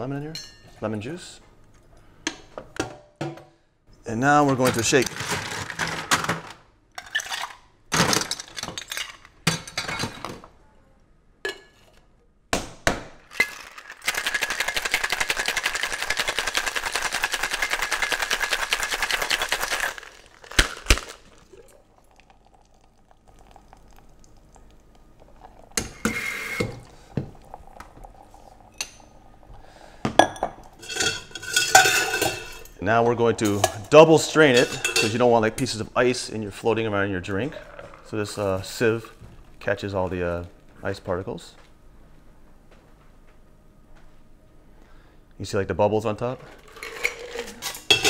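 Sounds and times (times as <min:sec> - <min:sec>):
shaking ice in tins: 0:13.3 - 0:21.7, 0:46.5 - 0:48.0
ice clinking in metal cocktail shaker: 0:13.4 - 0:24.0, 0:30.2 - 0:32.8, 0:34.5 - 0:35.7, 0:46.6 - 0:48.0.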